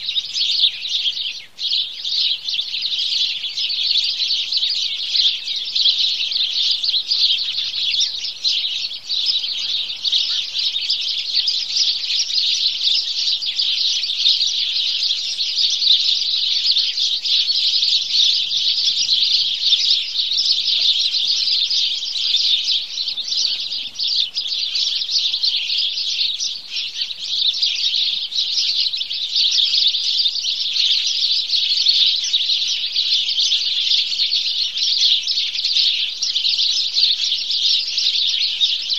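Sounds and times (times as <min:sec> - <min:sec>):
sparrows chirping: 0:00.0 - 0:38.9.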